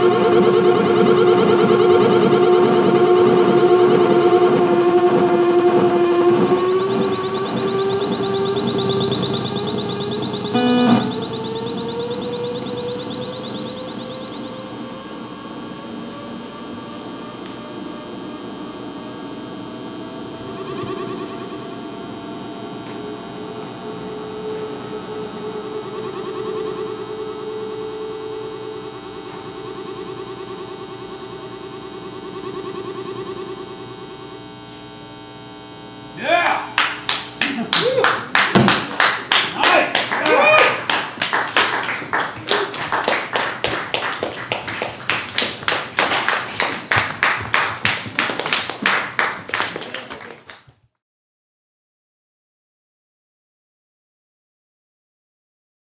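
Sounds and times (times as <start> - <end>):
fast repeating electronic flutter: 0.0 - 14.8
humming electronic drone: 0.0 - 49.4
hands clapping: 36.4 - 50.8.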